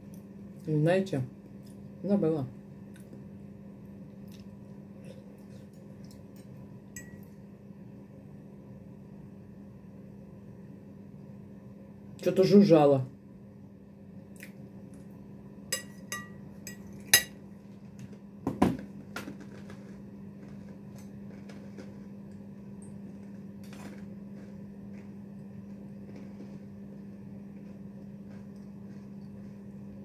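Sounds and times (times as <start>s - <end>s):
steady low hum: 0.0s - 30.0s
cutlery clinking against a dish: 6.3s - 7.3s, 15.8s - 17.4s.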